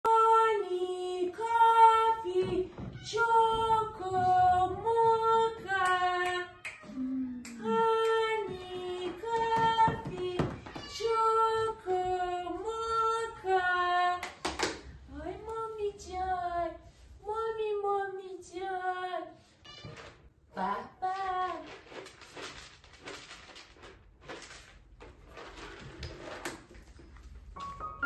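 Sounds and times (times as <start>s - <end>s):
woman calling cats in sing-song: 0.0s - 14.2s, 20.5s - 21.7s.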